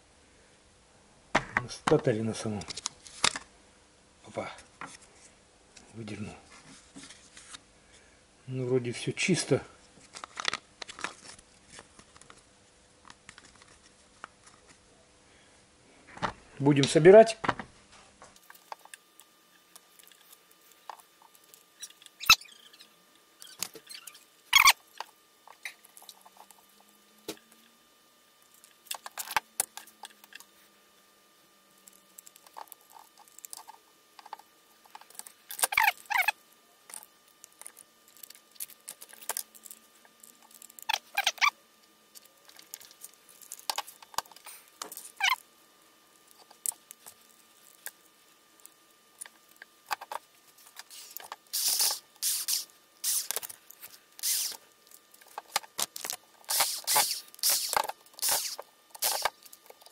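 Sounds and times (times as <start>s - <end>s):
tool parts scraping: 32.4s - 41.5s, 49.9s - 59.9s
tool parts clicking: 54.2s - 54.6s, 55.2s - 59.9s.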